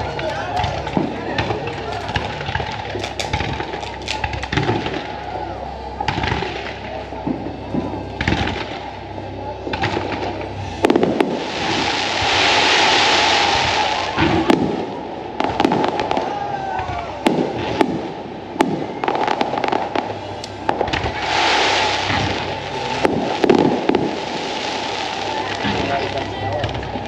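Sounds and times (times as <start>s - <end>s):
fireworks bursting bangs: 0.0s - 27.0s
hissing crackle: 6.3s - 16.3s, 17.2s - 27.0s.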